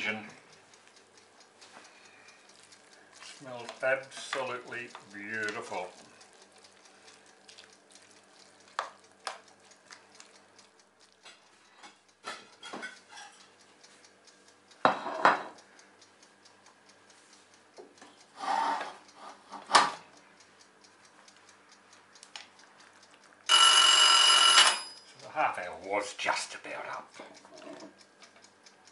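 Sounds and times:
kitchen timer ringing: 0.0s - 10.6s, 11.3s - 17.2s, 20.4s - 28.9s
spoon stirring thick beans: 1.6s - 13.6s
spoon knocking against pot: 14.8s - 15.6s.

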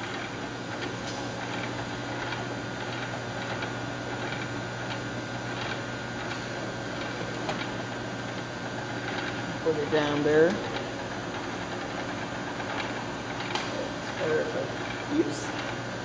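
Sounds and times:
machinery humming: 0.0s - 16.0s.

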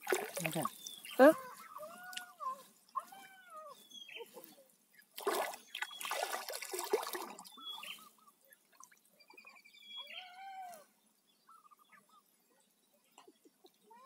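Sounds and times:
water splashing and sloshing: 0.0s - 2.4s, 5.1s - 9.4s.

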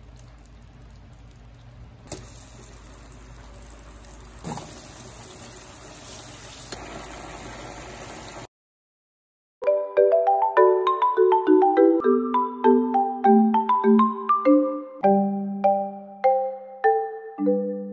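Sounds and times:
food sizzling in a frying pan: 2.1s - 8.5s.

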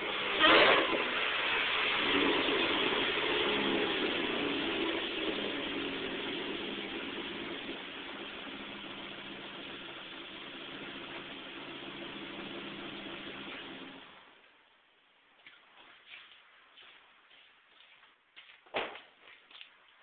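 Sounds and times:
car engine idling: 0.0s - 14.4s.

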